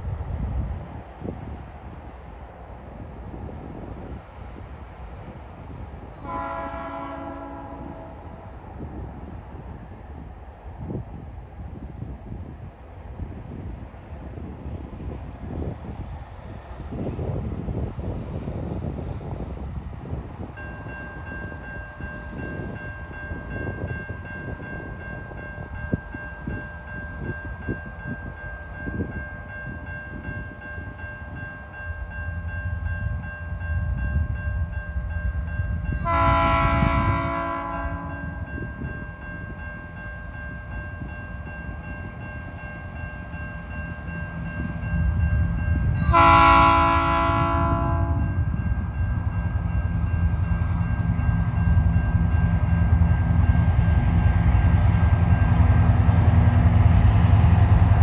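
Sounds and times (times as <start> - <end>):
train rumble: 0.0 - 58.0
locomotive horn blasts: 6.2 - 8.5, 36.0 - 38.4, 46.0 - 48.4.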